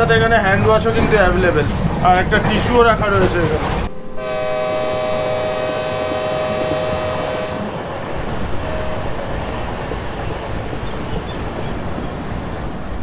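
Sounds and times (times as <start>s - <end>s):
moving train rumble: 0.0s - 13.0s
train horn: 4.0s - 10.2s.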